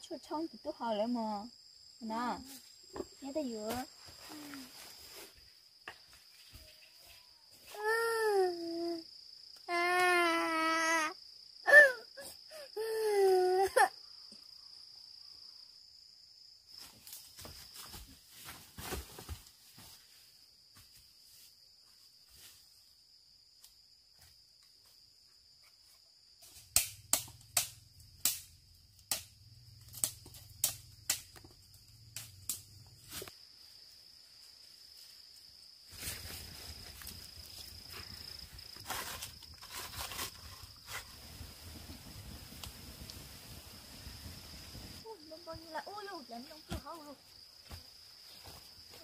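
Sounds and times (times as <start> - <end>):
crickets chirping: 0.0 - 49.0
rustling: 35.9 - 45.0.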